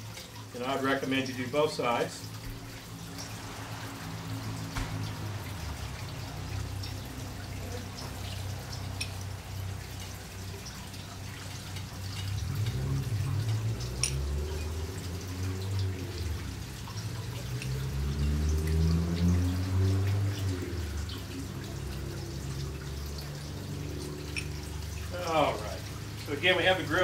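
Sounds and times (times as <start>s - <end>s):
mushrooms sizzling on a grill: 0.0s - 16.8s, 23.5s - 27.0s.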